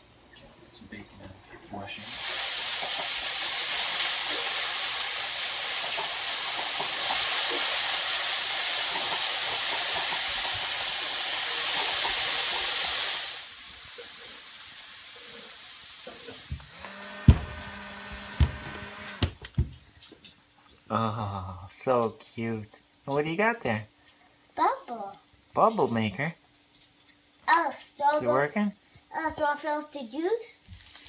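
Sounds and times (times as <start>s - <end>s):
tap water running: 1.9s - 19.7s.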